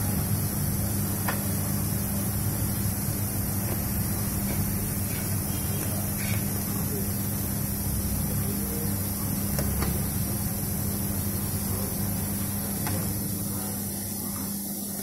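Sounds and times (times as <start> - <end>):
motor hum: 0.0 - 15.0.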